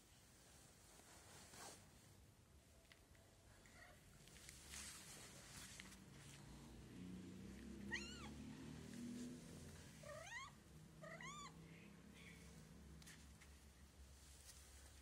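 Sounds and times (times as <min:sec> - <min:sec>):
cat meowing: 0:07.8 - 0:08.5, 0:10.0 - 0:11.6.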